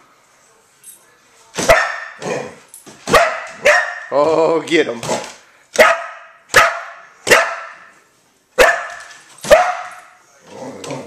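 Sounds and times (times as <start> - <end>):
dog barking sharply: 1.6 - 2.2, 3.1 - 4.1, 5.8 - 7.9, 8.6 - 9.9.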